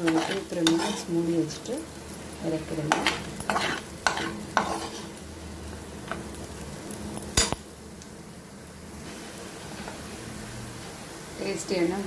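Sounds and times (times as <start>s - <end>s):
metal spoon clinking against pan: 7.4s - 7.6s.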